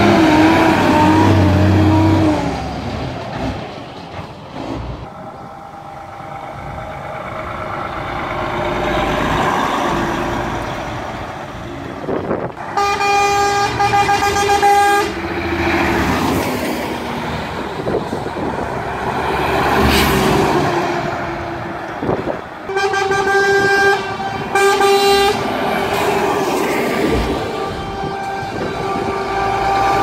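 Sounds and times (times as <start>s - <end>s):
diesel truck engines: 0.0s - 30.0s
vehicle horn: 12.7s - 15.3s, 22.7s - 25.6s, 27.1s - 30.0s.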